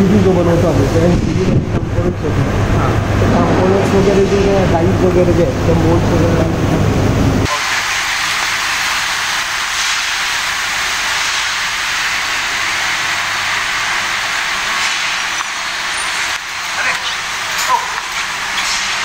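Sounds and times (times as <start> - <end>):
workshop machinery hiss: 7.4 - 19.0.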